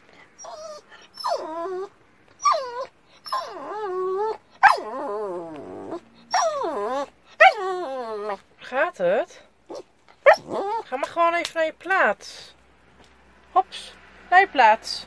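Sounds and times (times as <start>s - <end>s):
dog whining and yowling: 0.4s - 8.5s, 9.7s - 11.0s.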